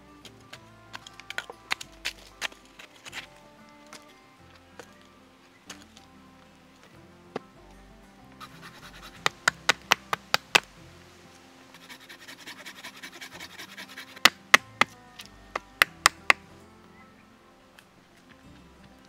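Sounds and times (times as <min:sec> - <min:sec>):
background music sustained tones: 0:00.0 - 0:19.0
bark being scraped: 0:08.4 - 0:10.7, 0:11.7 - 0:16.4
knife chopping into wood: 0:15.6 - 0:16.4.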